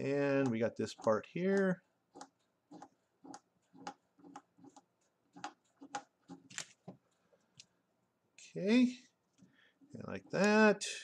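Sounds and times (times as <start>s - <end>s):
pencil scratching on paper: 2.1s - 6.5s.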